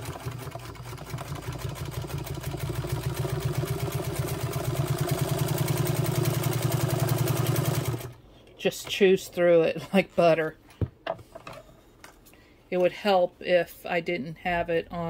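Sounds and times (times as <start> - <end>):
sewing machine motor humming: 0.0 - 8.2.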